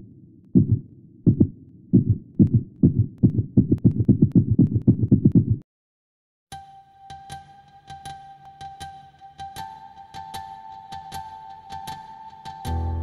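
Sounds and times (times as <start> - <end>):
heartbeat thumps: 0.5 - 5.6.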